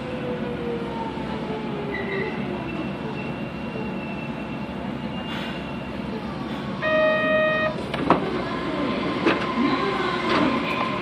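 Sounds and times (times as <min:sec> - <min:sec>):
pitched signal tone: 0:06.8 - 0:07.8.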